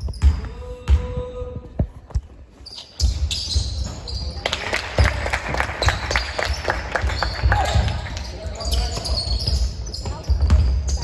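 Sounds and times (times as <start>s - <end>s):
basketball bouncing on gym floor: 0.0s - 2.3s, 5.8s - 11.0s.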